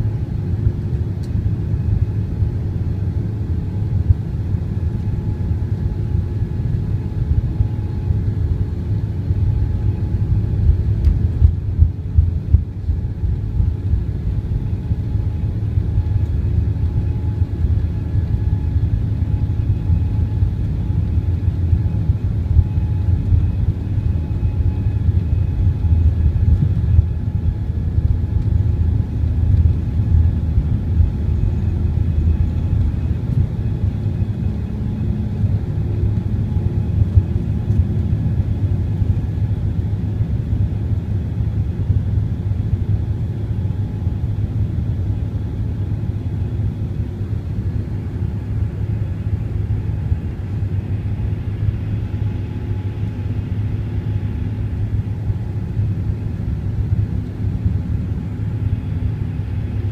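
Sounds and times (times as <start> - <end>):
faint whining tones: 0.0 - 40.7
airliner engine rumble: 0.0 - 59.9.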